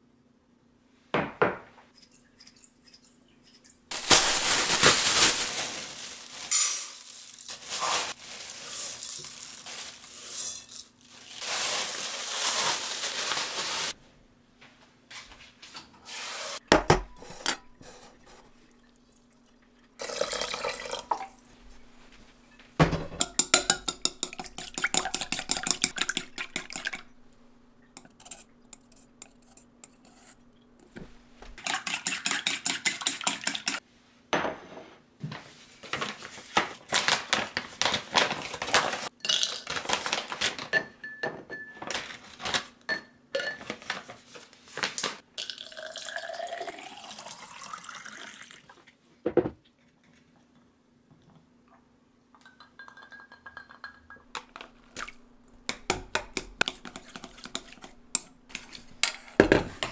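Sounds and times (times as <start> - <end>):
chopsticks beating eggs in metal bowl: 23.2 - 27.1, 27.9 - 31.0, 31.6 - 33.8, 55.6 - 59.9.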